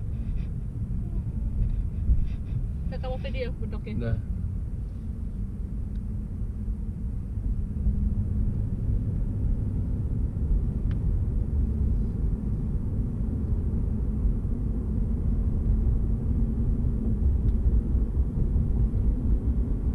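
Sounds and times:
car cabin road rumble: 0:00.0 - 0:19.9.

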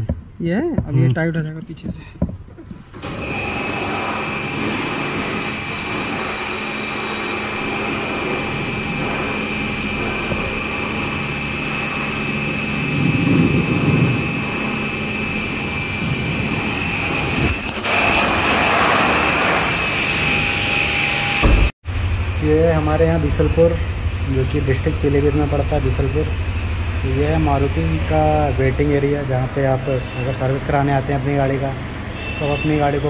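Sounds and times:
low machinery hum: 0:02.6 - 0:17.7, 0:20.5 - 0:32.1
high machinery whine: 0:03.0 - 0:33.0
loud low rumble: 0:21.4 - 0:29.3.

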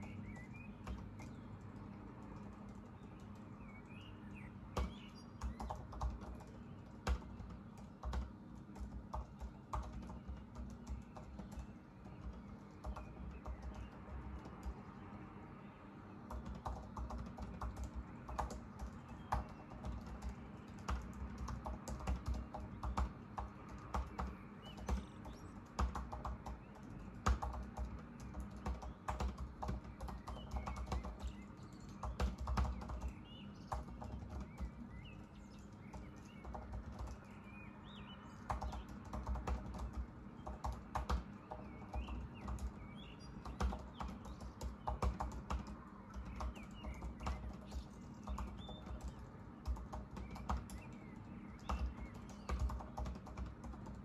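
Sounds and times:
laptop keyboard typing: 0:00.0 - 0:15.3, 0:16.2 - 0:54.0
faint bird chirps: 0:00.0 - 0:53.7.

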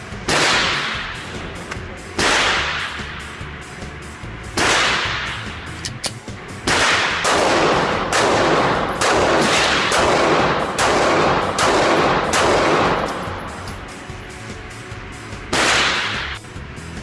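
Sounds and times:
pistol shots with reverberant tail: 0:00.1 - 0:03.2, 0:04.5 - 0:05.6, 0:06.6 - 0:13.6, 0:15.5 - 0:16.4.

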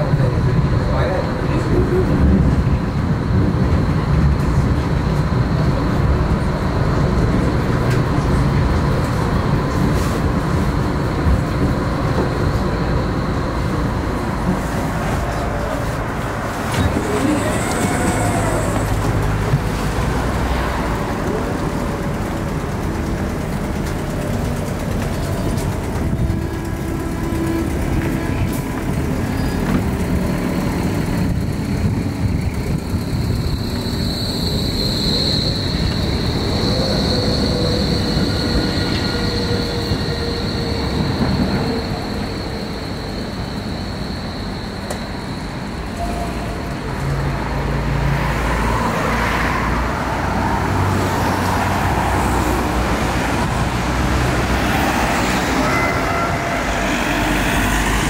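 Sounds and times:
tram wheel whine: 0:00.0 - 0:58.0
cars passing: 0:46.6 - 0:58.0.

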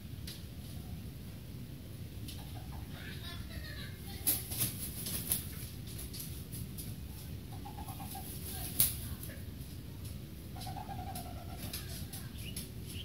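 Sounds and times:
rooster flapping wings: 0:04.1 - 0:06.8.

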